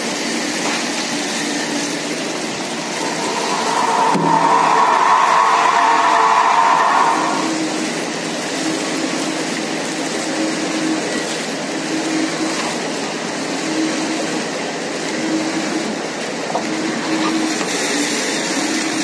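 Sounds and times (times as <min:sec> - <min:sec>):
washing machinery running: 0:00.0 - 0:19.0.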